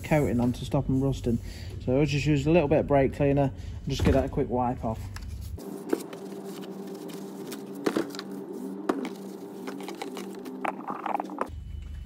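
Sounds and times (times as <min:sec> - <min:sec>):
steady hum: 0:04.6 - 0:11.9.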